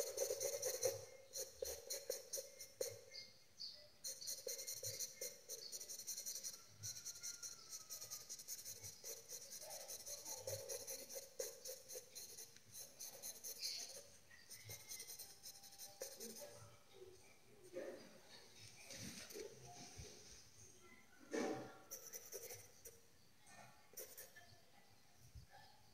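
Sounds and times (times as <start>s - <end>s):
pencil scratching on paper: 0.0s - 3.3s, 4.0s - 16.8s, 18.8s - 20.3s, 21.3s - 23.0s, 23.9s - 24.4s.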